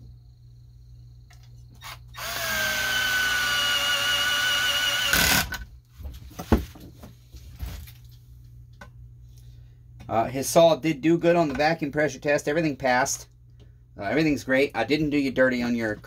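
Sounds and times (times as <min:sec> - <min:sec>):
cordless screwdriver running: 0:01.8 - 0:05.6.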